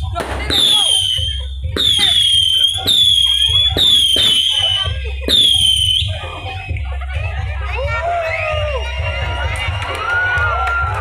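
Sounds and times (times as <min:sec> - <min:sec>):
whistling fireworks: 0:00.4 - 0:06.2.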